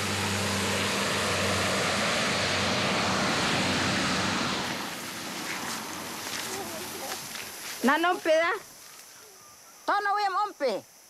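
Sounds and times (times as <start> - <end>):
loud rushing noise: 0.0 - 6.4
propeller airplane engine hum: 0.0 - 6.8
faint rustles: 5.0 - 9.4.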